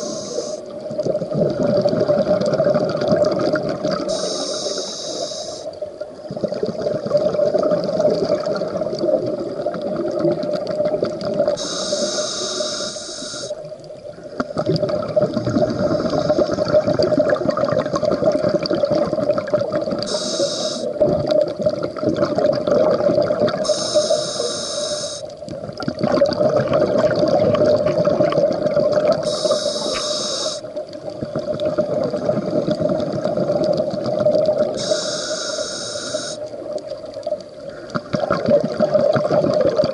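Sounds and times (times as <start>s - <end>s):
scuba regulator hissing inhales: 0.0s - 0.7s, 4.1s - 5.8s, 11.6s - 13.6s, 15.7s - 16.9s, 20.1s - 21.0s, 23.6s - 25.3s, 29.2s - 30.7s, 34.8s - 36.5s
gurgling exhaled bubbles: 0.0s - 4.3s, 5.7s - 12.0s, 13.4s - 24.5s, 25.3s - 35.2s, 36.1s - 39.9s.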